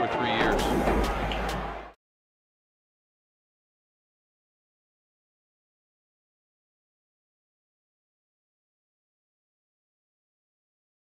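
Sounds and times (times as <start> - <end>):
ballpark crowd noise: 0.0 - 2.0.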